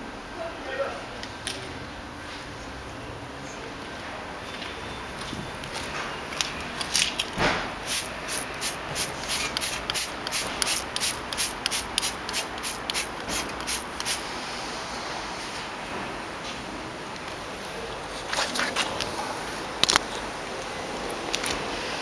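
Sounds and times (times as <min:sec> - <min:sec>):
spray bottle squirting: 0:07.8 - 0:14.3.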